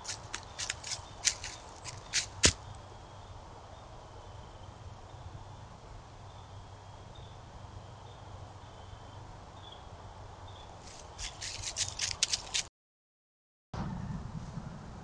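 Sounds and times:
crunching rustles in dry leaves: 0.0s - 2.8s, 10.8s - 12.7s.

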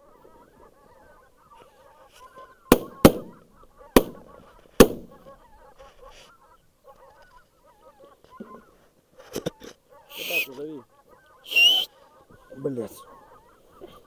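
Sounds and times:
geese honking: 0.0s - 14.0s
shotgun shots: 2.7s - 3.4s, 4.0s - 5.3s.

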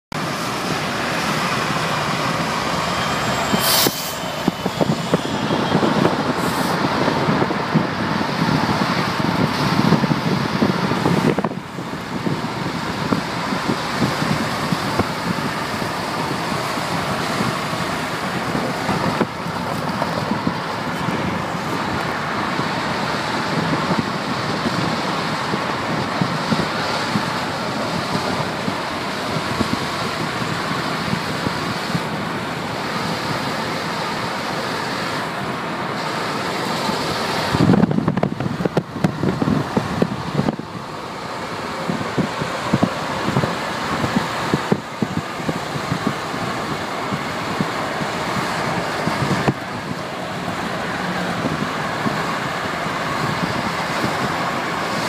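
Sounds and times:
car road and wind noise: 0.1s - 55.0s.

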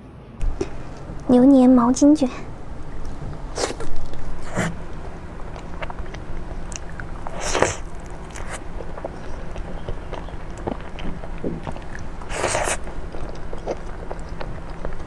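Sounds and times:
moist chewing: 2.9s - 15.0s
biting soft food: 3.0s - 15.0s.

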